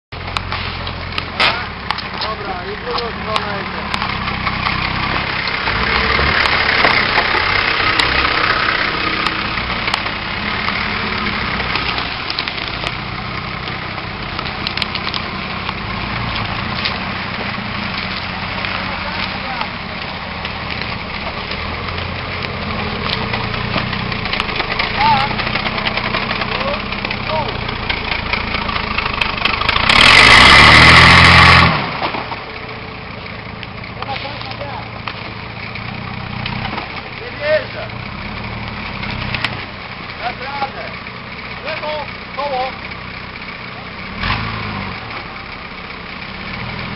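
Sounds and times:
diesel engine running at low revs: 0.1 - 46.9
sharp cracks: 0.3 - 32.8.

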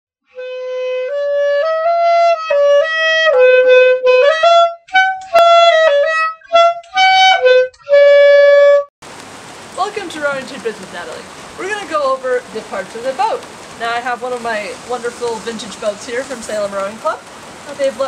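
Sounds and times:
solo melody: 0.3 - 8.9.

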